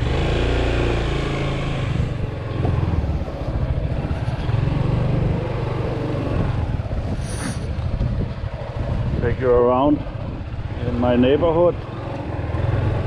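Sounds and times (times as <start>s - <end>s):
scooter engine running: 10.0s - 13.0s.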